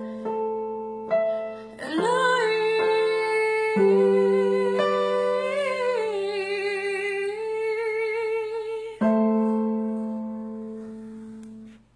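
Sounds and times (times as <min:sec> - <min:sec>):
woman singing: 0:01.4 - 0:10.2.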